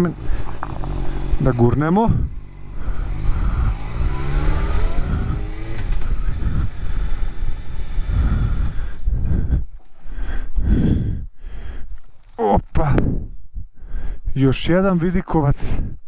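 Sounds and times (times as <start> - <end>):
motorcycle engine running: 0.0 - 9.6
road noise: 0.0 - 13.0
wind noise: 0.0 - 14.1.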